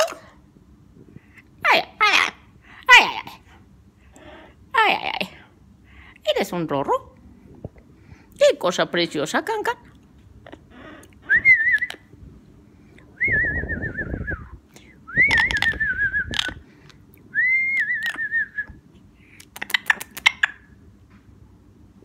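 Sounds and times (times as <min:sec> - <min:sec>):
parrot whistling: 0:17.4 - 0:18.7.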